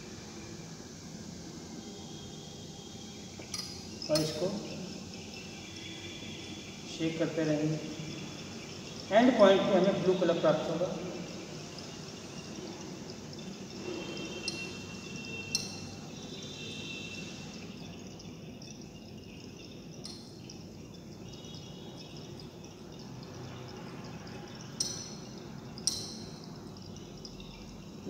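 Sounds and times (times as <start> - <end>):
glass clinks: 3.6 - 4.4, 24.8 - 26.5.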